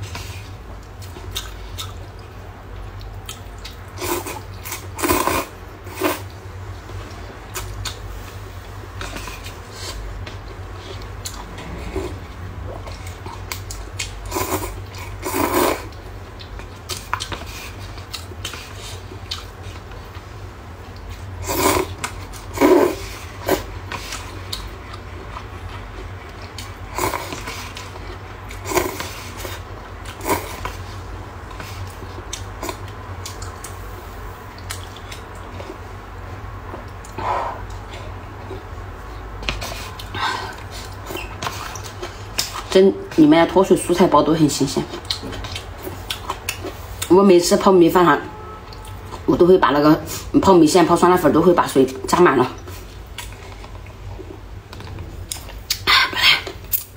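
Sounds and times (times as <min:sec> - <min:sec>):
low steady hum: 0:00.0 - 0:56.9
person slurping noodles: 0:04.0 - 0:06.3, 0:14.2 - 0:15.9, 0:21.4 - 0:23.7, 0:28.6 - 0:29.6.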